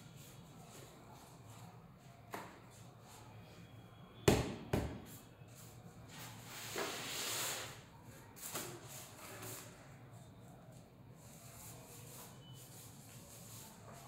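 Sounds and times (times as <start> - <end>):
rustling scrape: 11.2 - 14.0.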